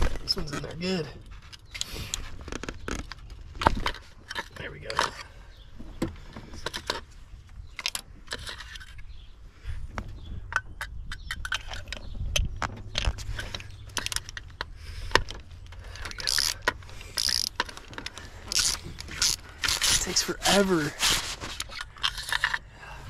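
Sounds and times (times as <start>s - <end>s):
ratchet clicking: 16.0s - 20.3s.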